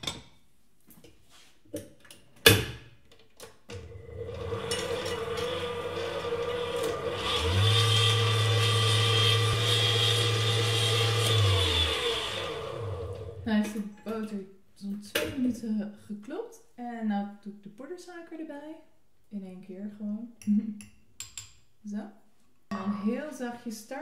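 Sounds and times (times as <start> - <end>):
stand mixer motor whirring: 3.8 - 13.5.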